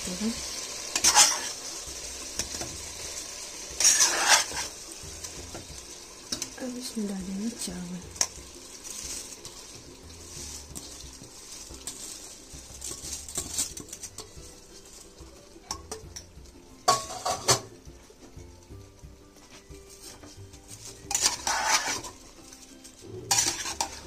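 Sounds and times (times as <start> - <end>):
spatula scraping a pot: 1.0 - 1.6, 3.8 - 4.8, 20.8 - 22.2, 23.2 - 24.0
rice pouring into a pot: 8.2 - 15.2
metal knocks on a cooker: 16.9 - 17.7.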